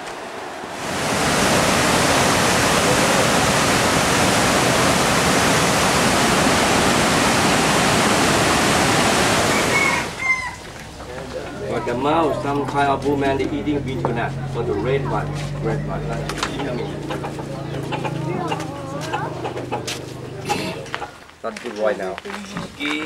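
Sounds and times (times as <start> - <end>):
waterfall and rushing river: 0.0 - 10.9.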